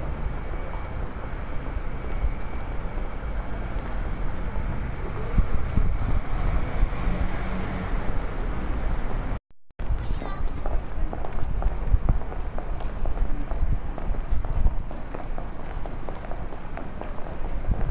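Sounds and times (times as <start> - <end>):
faint street background: 0.0 - 17.9
wind buffeting microphone: 3.9 - 7.4, 9.8 - 17.9.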